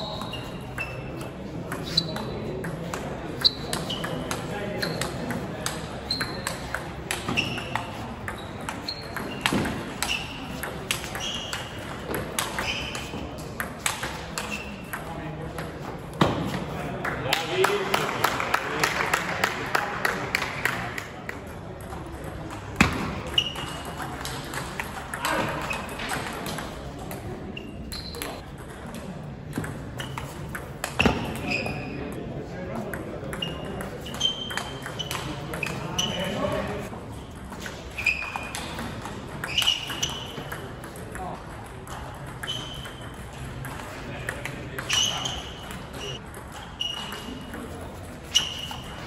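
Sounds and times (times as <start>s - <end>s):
ball pinging on table: 1.7s - 15.1s.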